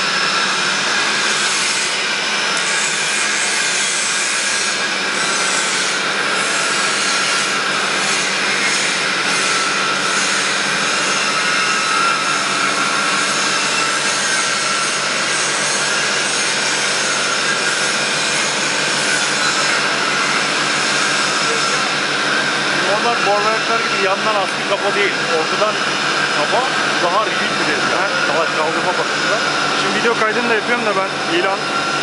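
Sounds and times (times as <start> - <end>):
boring mill machine whir: 0.0 - 32.0.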